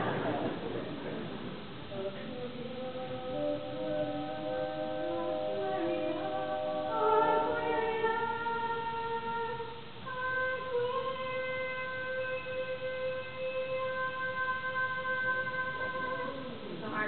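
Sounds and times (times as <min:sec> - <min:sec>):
woman singing a cappella: 0:01.9 - 0:17.0.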